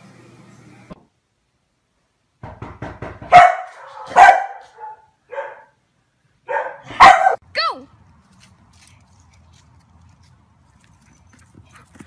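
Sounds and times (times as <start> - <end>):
dog barking: 3.2 - 5.8, 6.4 - 7.4.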